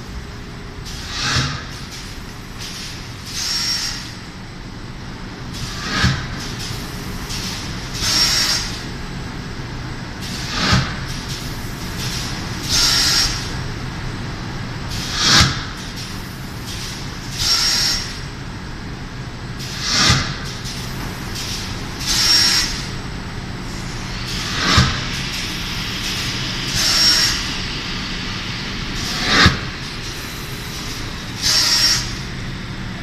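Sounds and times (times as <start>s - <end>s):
sharp machine knock with hiss: 0.9s - 4.2s, 5.5s - 8.8s, 10.2s - 13.5s, 14.9s - 18.2s, 19.6s - 22.9s, 24.1s - 27.7s, 28.9s - 32.2s.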